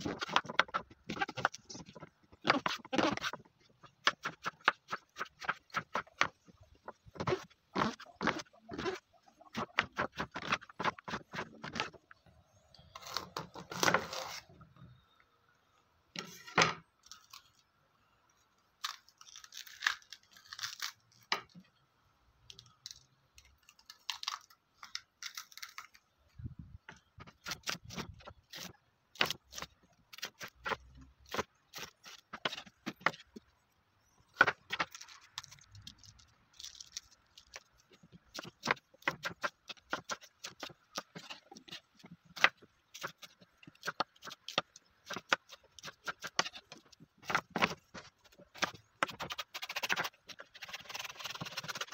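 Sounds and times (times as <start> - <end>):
peppers tearing and rustling: 0.0 - 12.0, 17.0 - 17.7, 18.8 - 21.3, 22.6 - 26.3, 34.3 - 51.9.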